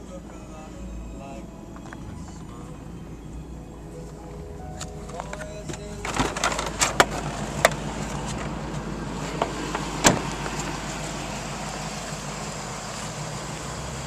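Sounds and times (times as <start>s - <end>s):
car door shutting: 4.1s - 8.6s, 9.2s - 10.8s.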